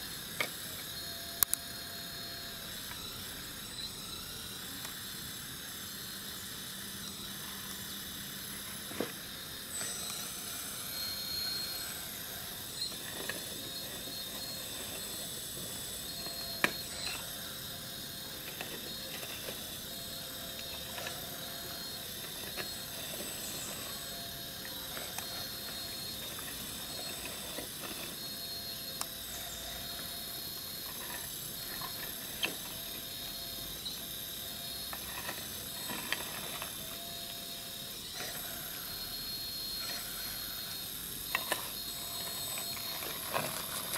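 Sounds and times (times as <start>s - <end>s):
electric hydraulic pump whining: 0.0s - 43.9s
clicks of bucket and stones: 34.9s - 36.8s, 41.3s - 43.9s.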